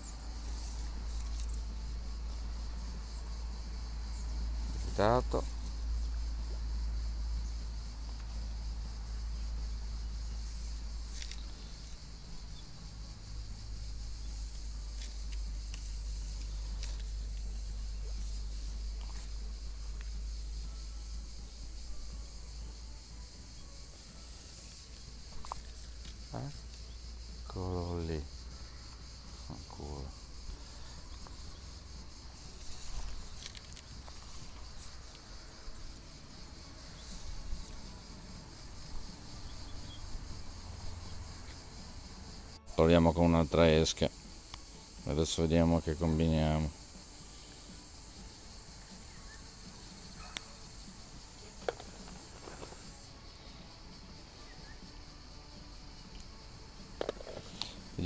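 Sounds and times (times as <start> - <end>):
high insect drone: 0.0 - 58.0
fishing rod handling clicks: 33.0 - 34.2.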